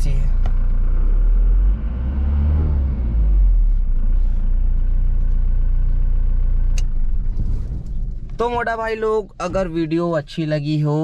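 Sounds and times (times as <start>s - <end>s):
diesel engine idling: 0.0s - 1.8s, 3.0s - 11.0s.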